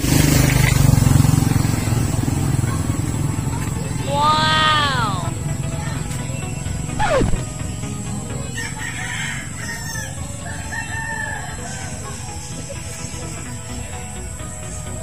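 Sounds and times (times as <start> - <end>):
rooster crowing: 8.5 - 12.0.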